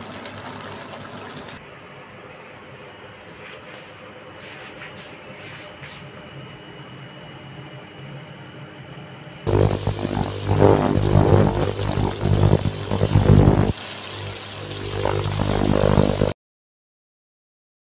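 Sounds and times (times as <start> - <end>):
motor running: 9.5 - 16.4.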